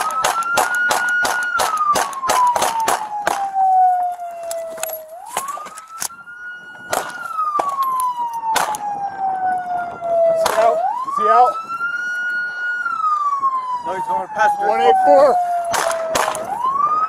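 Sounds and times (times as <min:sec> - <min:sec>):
sharp cracks: 0:00.0 - 0:03.6, 0:06.9 - 0:08.8, 0:10.4 - 0:10.8, 0:15.7 - 0:16.6
police car siren wailing: 0:00.0 - 0:17.0.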